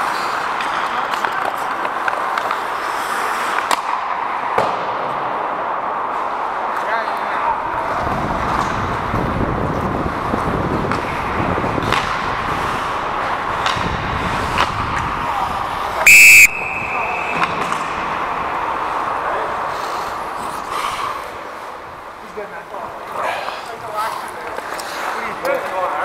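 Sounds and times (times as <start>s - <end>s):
skates scraping ice: 0.0s - 4.8s, 5.4s - 16.0s, 16.6s - 26.0s
hockey sticks clacking: 0.0s - 5.2s, 8.4s - 9.3s, 10.3s - 26.0s
referee whistle blast: 16.1s - 17.7s.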